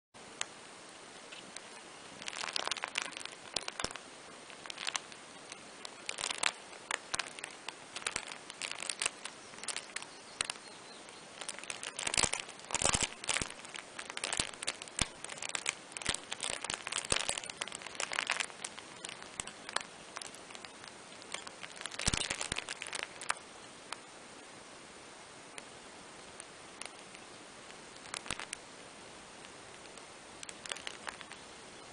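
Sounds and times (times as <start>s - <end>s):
fabric playmat crinkling: 1.3s - 23.4s, 27.9s - 28.6s, 29.4s - 31.4s.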